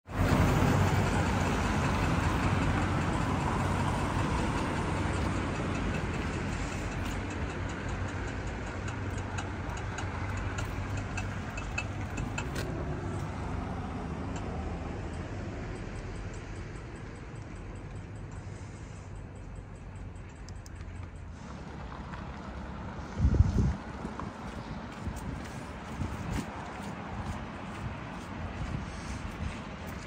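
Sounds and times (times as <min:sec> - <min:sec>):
vehicle engine humming: 0:00.0 - 0:30.0
light sharp ticks: 0:04.6 - 0:13.3, 0:14.3 - 0:21.3.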